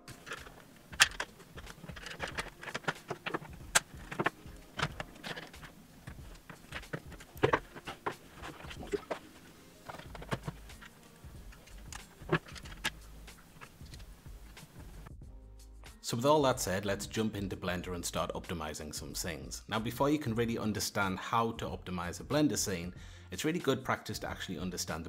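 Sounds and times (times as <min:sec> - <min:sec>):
computer hardware clicking and rattling: 0:00.0 - 0:09.2, 0:09.8 - 0:14.7.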